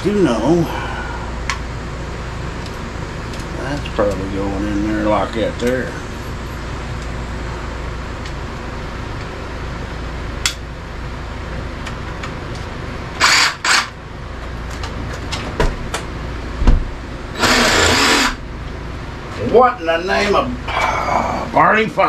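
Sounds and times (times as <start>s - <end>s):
steady hum: 0.0s - 22.0s
power saw running: 13.2s - 13.9s, 17.3s - 18.4s.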